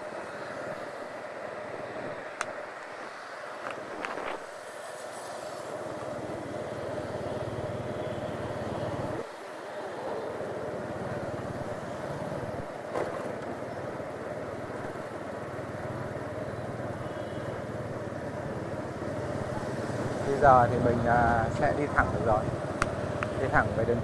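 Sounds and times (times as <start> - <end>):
road noise: 0.0 - 24.0.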